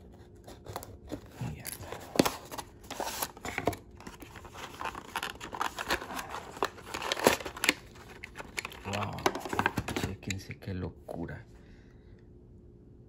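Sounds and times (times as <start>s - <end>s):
plastic crinkles: 1.4s - 10.1s.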